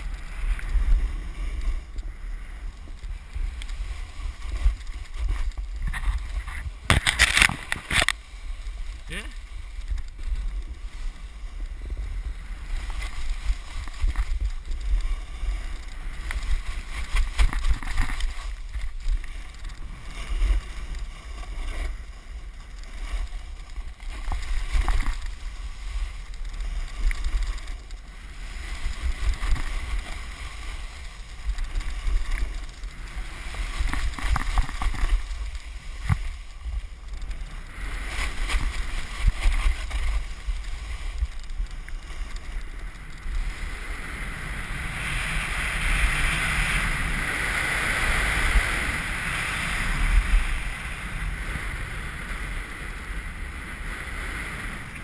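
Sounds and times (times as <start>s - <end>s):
wind rumbling on microphone: 0.0s - 55.0s
snowboard edge scraping snow: 2.5s - 55.0s.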